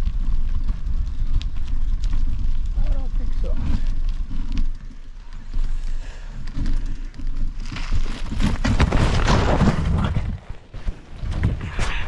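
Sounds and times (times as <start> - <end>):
tyres crunching on gravel: 0.0 - 11.5
bike rattling: 0.0 - 12.0
low wind rumble: 0.0 - 12.0.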